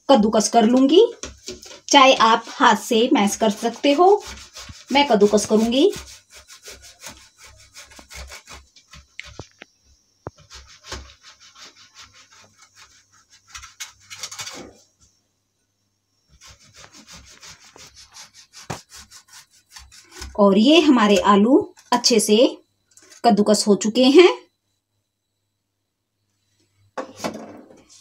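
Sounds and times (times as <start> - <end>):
potatoes scraping on metal grater: 1.6 - 9.3, 16.4 - 21.4.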